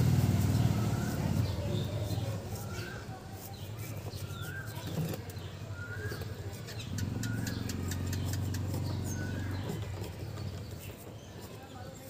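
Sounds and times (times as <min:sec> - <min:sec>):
low engine hum: 0:00.0 - 0:03.0, 0:06.8 - 0:11.1.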